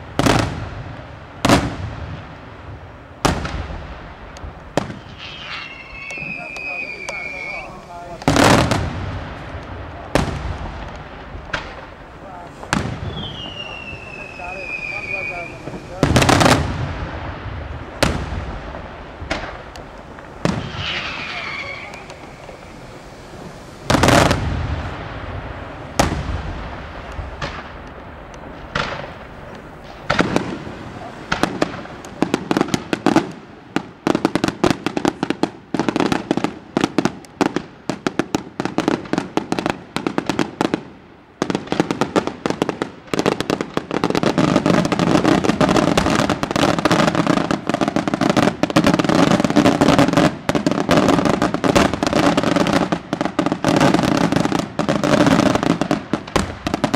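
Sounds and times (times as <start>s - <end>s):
fireworks bangs and crackles: 0.0s - 56.9s.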